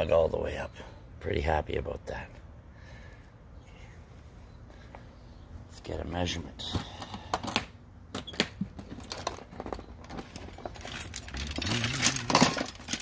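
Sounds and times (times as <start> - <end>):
low vocal hum: 11.3 - 12.6.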